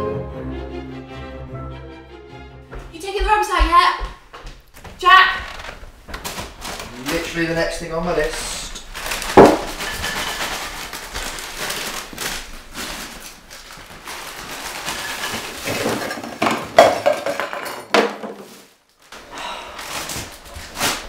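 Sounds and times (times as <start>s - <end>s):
footsteps on tiled floor: 2.6s - 7.0s
can falling onto tile floor: 9.3s - 10.4s, 15.2s - 18.7s
bin lid clattering: 14.9s - 18.6s.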